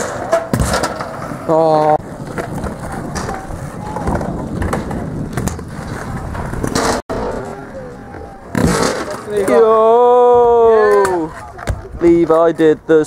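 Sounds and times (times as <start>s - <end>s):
scooter wheels rolling on tarmac: 0.9s - 8.4s.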